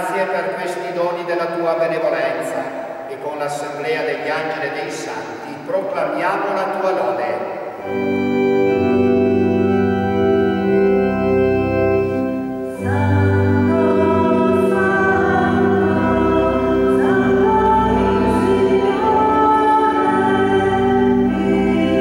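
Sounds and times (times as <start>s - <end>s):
church organ playing chords: 0.0s - 22.0s
voices singing a hymn: 6.4s - 22.0s.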